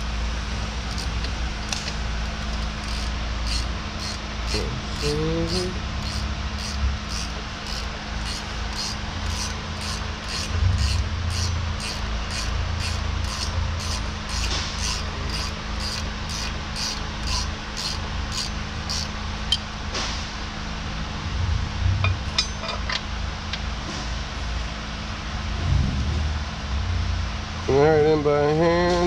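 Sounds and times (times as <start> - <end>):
machine hum: 0.0 - 27.8
wrench clinking on metal: 1.8 - 19.7, 22.0 - 23.1.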